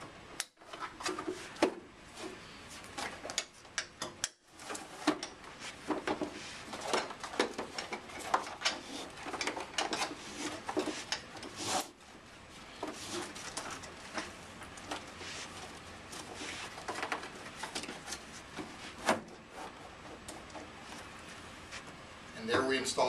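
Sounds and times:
plastic rubbing on upholstery: 12.9 - 21.9.

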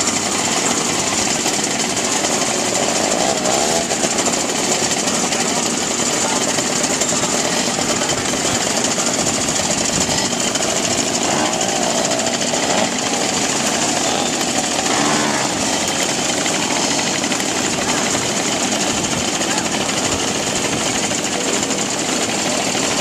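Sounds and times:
moped engines idling: 0.0 - 23.0.

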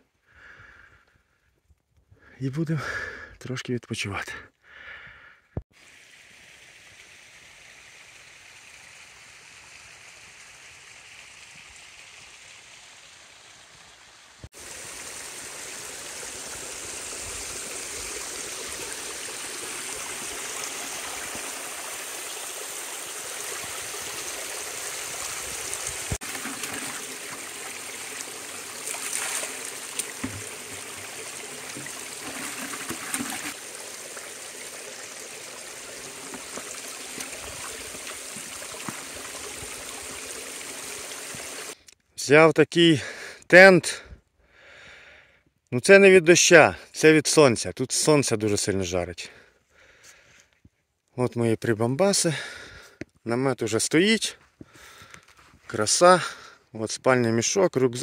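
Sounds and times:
mountain stream running: 5.7 - 41.8.

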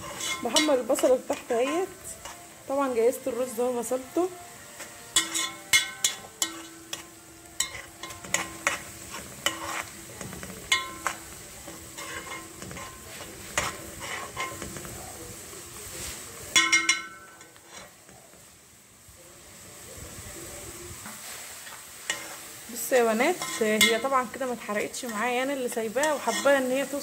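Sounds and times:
onion sizzling in a pot: 0.0 - 27.0
spoon clinking against pot: 0.1 - 2.4, 5.2 - 13.0, 13.6 - 14.8, 16.6 - 17.9, 23.4 - 24.1.

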